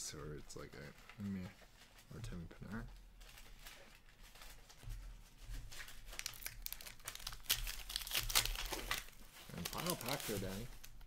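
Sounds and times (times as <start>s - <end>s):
foil wrapper tearing and crinkling: 5.8s - 11.0s.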